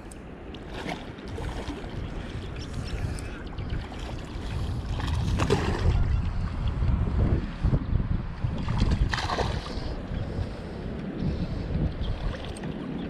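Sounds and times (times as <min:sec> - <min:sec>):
water lapping: 0:00.0 - 0:06.4, 0:08.7 - 0:10.8
wind buffeting microphone: 0:00.0 - 0:13.0.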